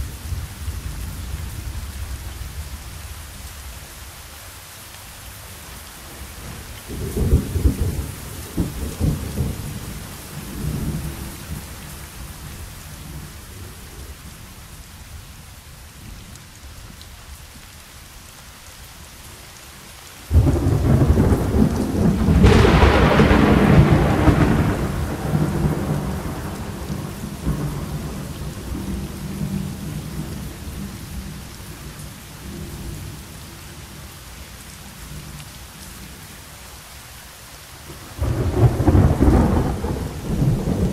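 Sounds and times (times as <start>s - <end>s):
steady rain: 0.0s - 40.9s
thunder rumbling: 6.4s - 13.8s, 20.3s - 31.8s, 38.2s - 40.9s
loud thunder clap: 20.3s - 28.9s, 38.2s - 40.9s.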